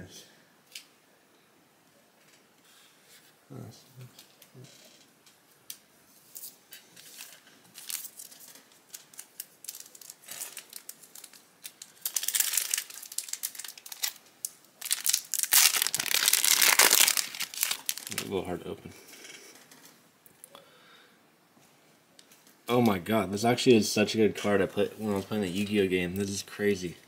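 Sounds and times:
foil wrapper crinkling and tearing: 6.4s - 18.4s.

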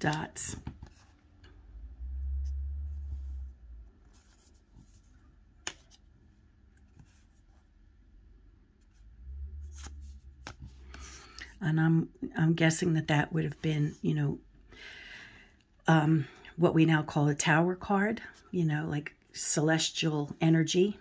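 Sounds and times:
cards rustling: 9.7s - 11.6s.

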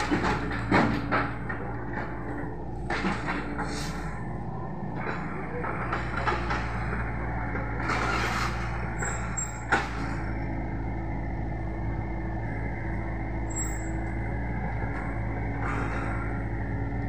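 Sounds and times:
diesel engine running: 0.0s - 17.0s
steady hum: 10.0s - 17.0s.

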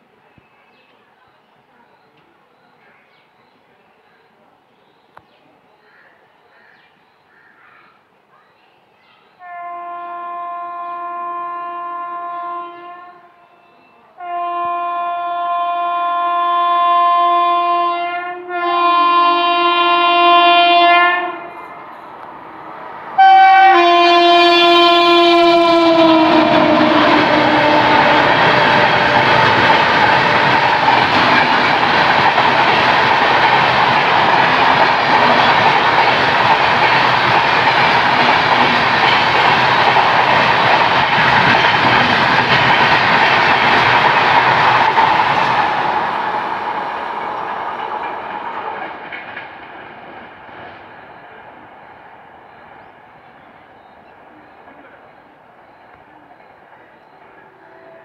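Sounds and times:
locomotive horn blasts: 9.4s - 13.4s, 14.2s - 21.6s, 23.2s - 30.6s
train coaches rushing and clattering: 19.7s - 58.0s.

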